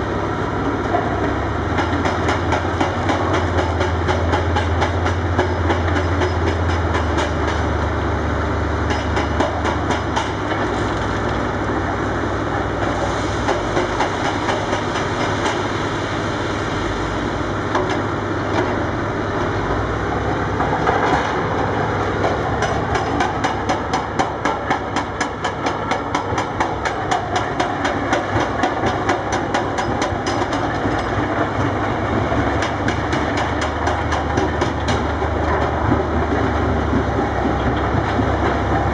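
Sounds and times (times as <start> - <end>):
diesel engines droning: 0.0 - 38.9
hydraulic breaker hammering rock: 0.9 - 7.8, 8.8 - 10.8, 12.8 - 15.6, 22.2 - 38.9.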